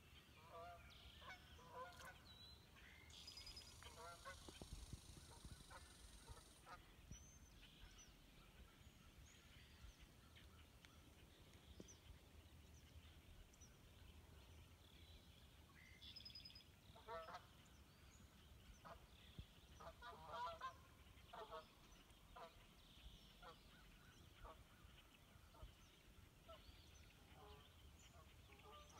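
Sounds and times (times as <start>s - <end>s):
faint goose honks: 0.4s - 2.2s, 3.9s - 4.6s, 17.0s - 17.6s, 19.8s - 22.6s, 27.4s - 28.9s.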